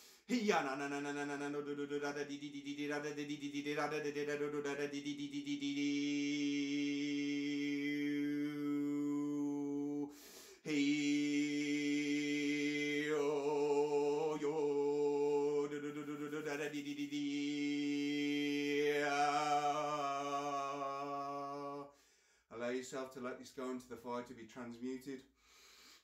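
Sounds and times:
short breath: 0.0 - 0.3, 10.1 - 10.7, 21.9 - 22.5, 25.3 - 26.0.

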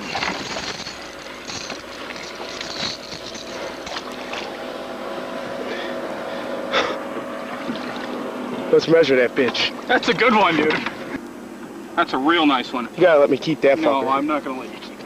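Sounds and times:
net and lure rattling: 0.0 - 4.6
water splashing: 0.0 - 4.8, 7.2 - 8.7
boat motor running: 0.0 - 15.0.

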